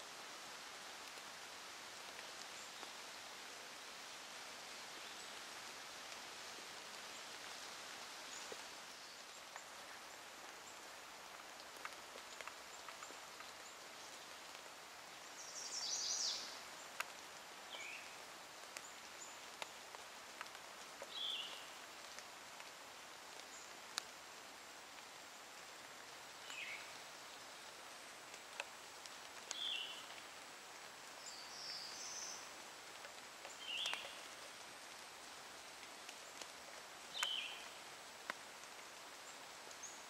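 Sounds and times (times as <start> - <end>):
soft steady hiss: 0.0 - 40.0
small ticks: 11.3 - 14.6, 16.9 - 17.3, 18.0 - 24.2, 28.3 - 30.5, 32.9 - 39.9.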